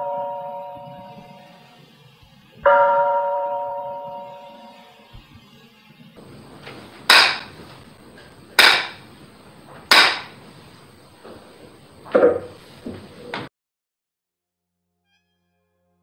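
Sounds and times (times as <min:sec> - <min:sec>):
bamboo clapper claps: 0:07.1 - 0:07.6, 0:08.6 - 0:09.0, 0:09.9 - 0:10.4
soft wooden knocks: 0:11.2 - 0:13.5.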